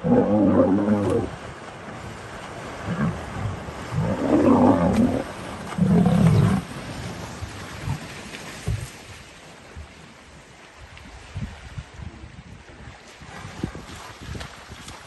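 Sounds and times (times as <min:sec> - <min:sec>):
lion growling: 0:00.0 - 0:01.3, 0:02.8 - 0:06.6
splashing in water: 0:00.0 - 0:09.2.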